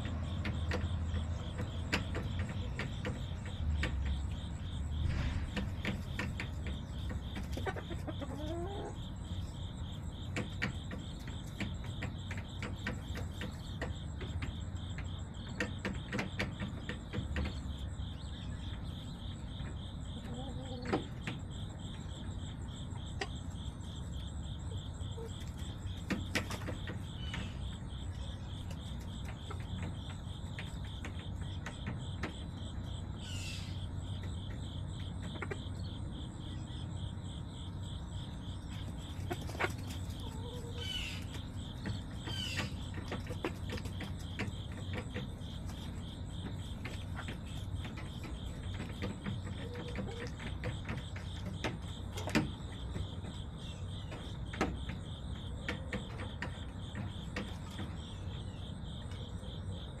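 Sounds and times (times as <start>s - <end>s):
crickets chirping: 0.0s - 60.0s
short chirping calls: 35.0s - 48.9s.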